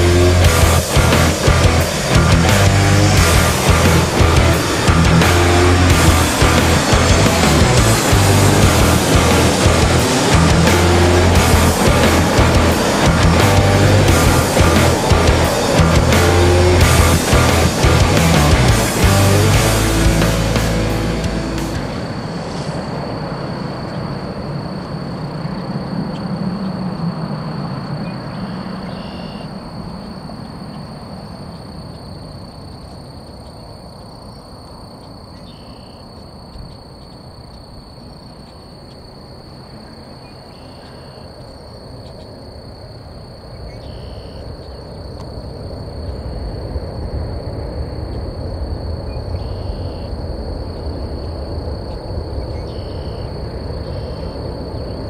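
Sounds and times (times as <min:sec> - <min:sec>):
jet airliner landing: 0:00.0 - 0:32.5, 0:44.4 - 0:55.0.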